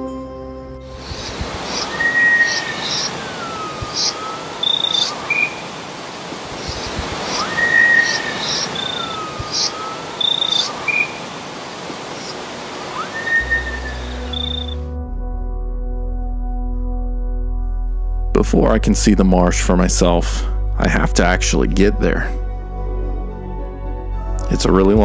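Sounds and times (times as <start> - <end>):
music: 0.0 - 3.1, 13.4 - 25.0
steady rushing wash: 0.9 - 14.6
bird calls: 0.9 - 14.8.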